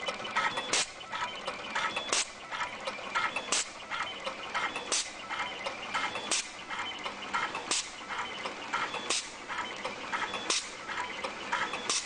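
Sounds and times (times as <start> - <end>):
machine snapping sharply: 7.6 - 7.9.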